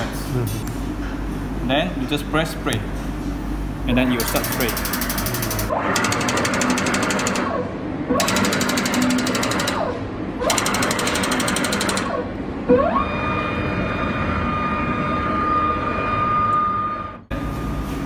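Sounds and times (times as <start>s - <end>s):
machine knock: 8.2s - 9.9s.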